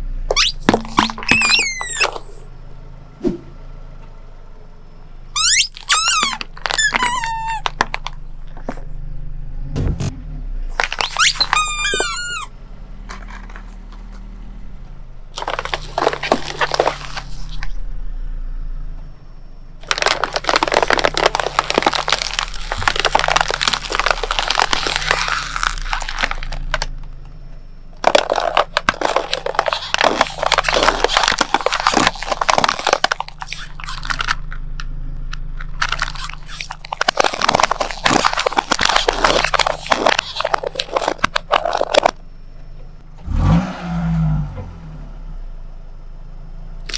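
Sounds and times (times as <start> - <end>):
low steady hum: 0.0 - 43.3
plastic pots cracking: 0.3 - 2.4, 5.4 - 8.8, 10.7 - 12.4, 15.4 - 17.8, 19.8 - 27.3, 28.0 - 34.6, 35.6 - 42.2
tyre crunching objects: 0.3 - 2.5, 5.4 - 8.9, 9.8 - 14.5, 15.3 - 17.8, 19.8 - 34.6, 35.5 - 42.2
squeaky toy squeal: 1.2 - 2.4, 5.4 - 7.7, 11.0 - 12.5.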